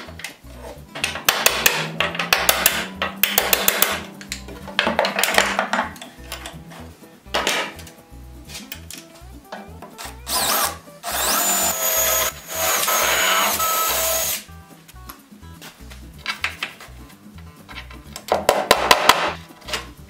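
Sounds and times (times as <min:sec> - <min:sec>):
cordless drill boring into wood: 0:10.3 - 0:14.4.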